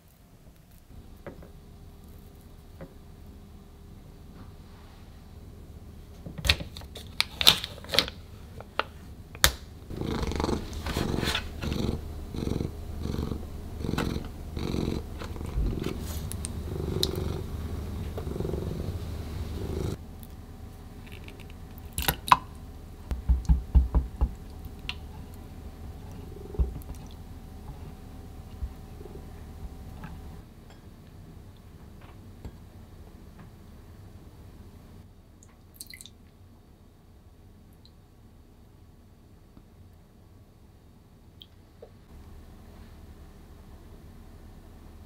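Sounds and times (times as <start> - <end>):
cat purring: 9.9 - 20.0, 23.2 - 30.4.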